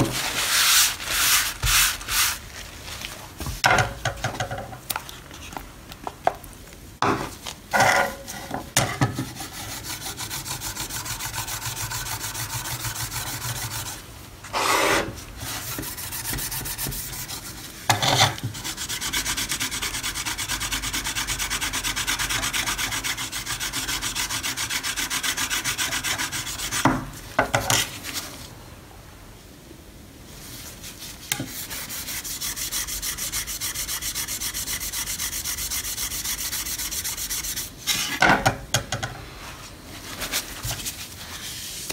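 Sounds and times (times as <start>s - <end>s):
metal brush scrubbing steel blade: 31.3s - 38.2s.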